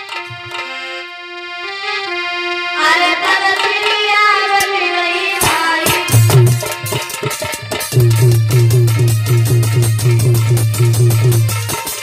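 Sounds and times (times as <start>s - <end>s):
harmonium reed notes: 0.0s - 12.0s
drum strike: 5.4s - 12.0s.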